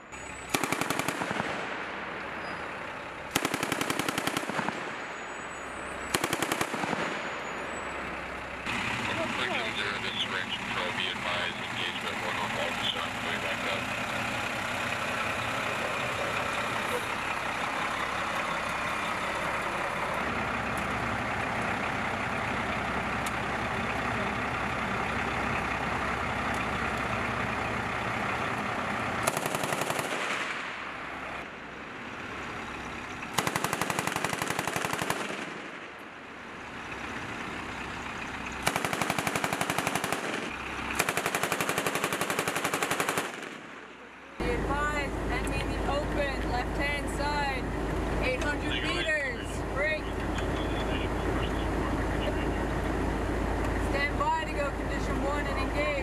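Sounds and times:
truck diesel engine running: 0:00.0 - 0:56.0
heavy machine gun bursts: 0:00.5 - 0:01.8, 0:03.3 - 0:05.2, 0:06.0 - 0:07.6, 0:29.2 - 0:30.7, 0:33.3 - 0:35.8, 0:38.6 - 0:43.8.

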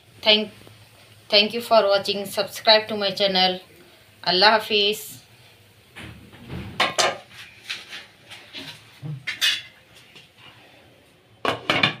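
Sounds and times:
utensil scraping frying pan: 0:06.8 - 0:09.8.

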